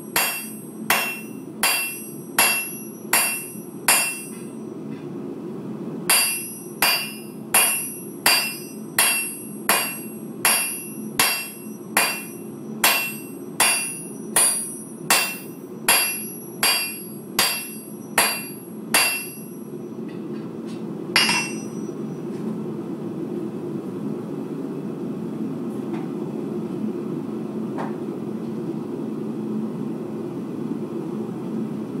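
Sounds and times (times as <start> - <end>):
hammer ringing on anvil: 0.0 - 4.6, 6.1 - 19.8, 21.2 - 22.0.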